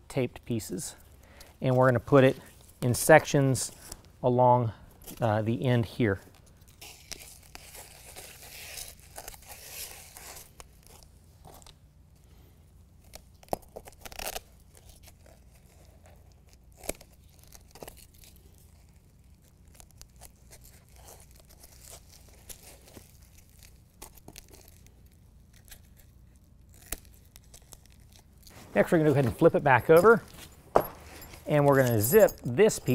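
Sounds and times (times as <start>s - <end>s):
adhesive backing tearing: 6.4s - 11.8s, 13.0s - 29.6s.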